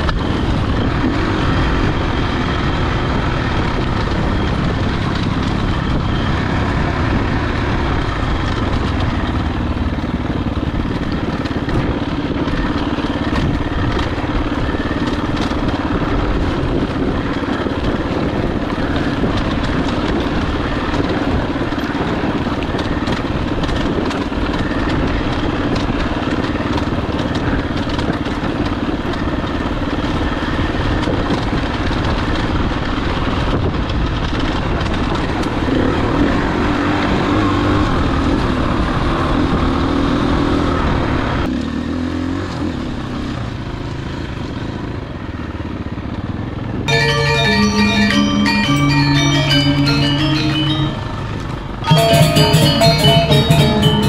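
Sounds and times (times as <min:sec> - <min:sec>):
dirt bike engine running: 0:00.0 - 0:30.6.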